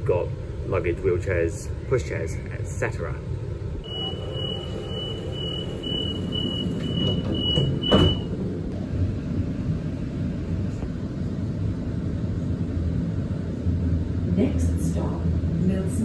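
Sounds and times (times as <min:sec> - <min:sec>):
low steady rumble: 0:00.0 - 0:16.0
high warning beeps: 0:03.8 - 0:08.3
sliding doors shutting with knock: 0:05.9 - 0:08.4.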